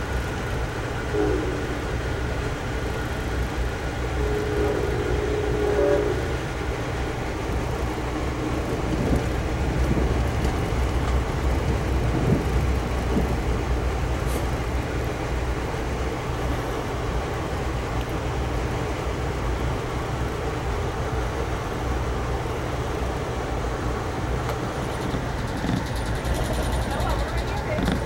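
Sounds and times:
train coach low rumble: 0.0s - 28.0s
locomotive horn: 0.8s - 13.3s.

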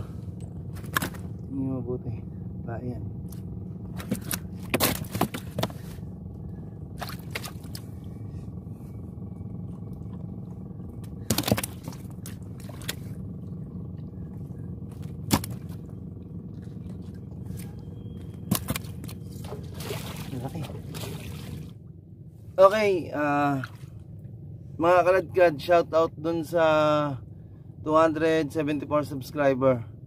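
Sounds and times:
boat engine idling: 0.0s - 30.0s
fish trap knocking and scraping: 3.9s - 5.8s.

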